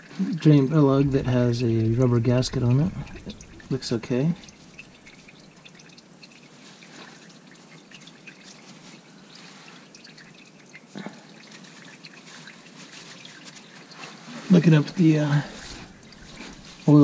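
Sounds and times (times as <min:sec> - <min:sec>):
oil dripping into a pan: 0:00.9 - 0:14.0.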